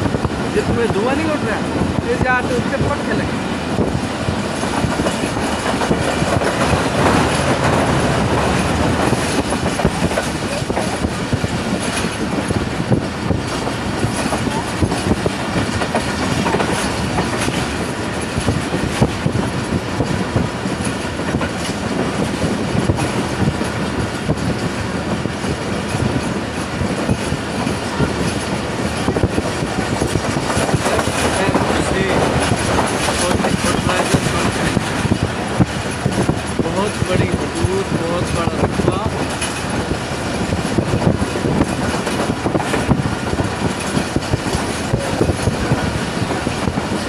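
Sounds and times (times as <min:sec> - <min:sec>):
train wheels clacking: 0:00.0 - 0:47.0
train wheels rumbling on track: 0:00.0 - 0:47.0.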